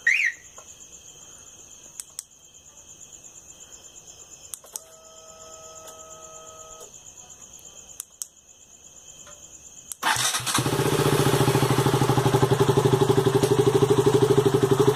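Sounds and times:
motorcycle engine starting and idling: 0:10.0 - 0:14.9.

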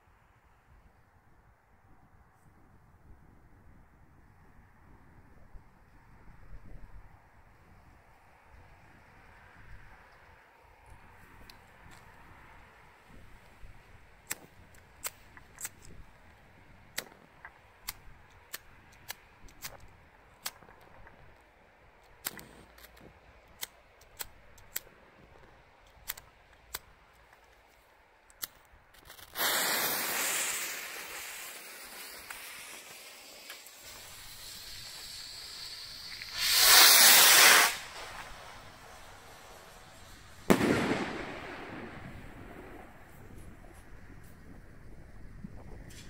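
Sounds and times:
fuse crackling with pops: 0:13.1 - 0:30.8, 0:31.5 - 0:39.2
rocket motor rushing hiss: 0:29.0 - 0:41.9
loud hissing spray: 0:29.1 - 0:40.5.

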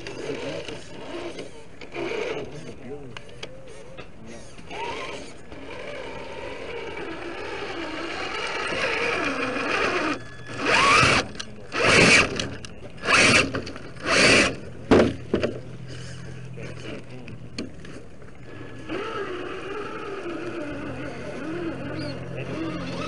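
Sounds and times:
electric motor whining: 0:00.0 - 0:14.8, 0:18.2 - 0:23.0
loud throttle blips: 0:04.7 - 0:23.0.

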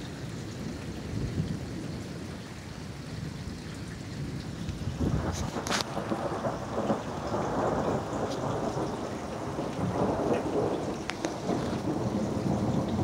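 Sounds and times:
rain falling: 0:00.0 - 0:13.0
thunder rumbling: 0:04.8 - 0:13.0.

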